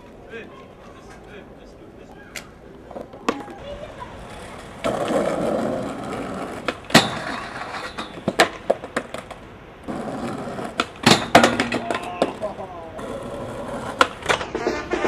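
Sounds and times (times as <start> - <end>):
skateboard wheels rolling on concrete: 0.0 - 15.0
skateboard clacking on ground: 2.0 - 15.0.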